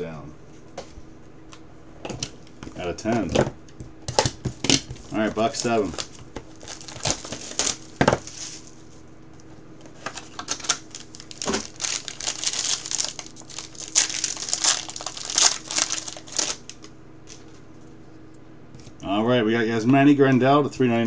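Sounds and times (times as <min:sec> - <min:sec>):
plastic wrapper crinkling and tearing: 0:04.7 - 0:08.8, 0:10.0 - 0:17.5.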